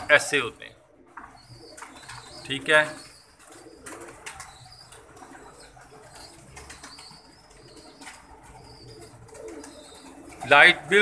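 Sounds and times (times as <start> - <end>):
pigeon wings flapping: 3.3 - 11.0.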